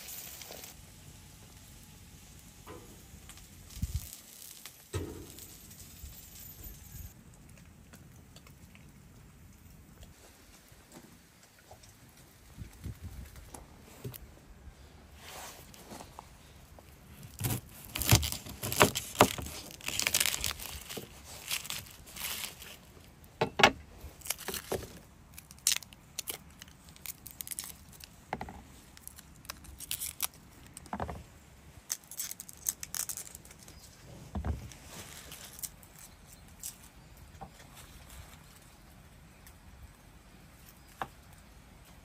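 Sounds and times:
garlic skins crackling and tearing: 3.0 - 5.4, 17.0 - 23.3, 24.1 - 31.0, 31.8 - 33.9, 34.6 - 37.0.

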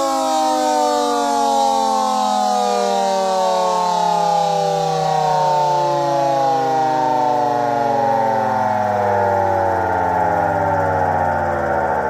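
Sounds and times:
small electric siren winding down: 0.0 - 12.0.

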